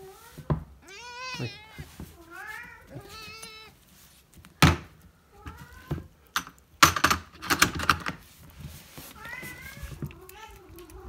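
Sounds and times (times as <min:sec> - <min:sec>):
cat meowing: 0:00.8 - 0:03.8, 0:09.0 - 0:11.0.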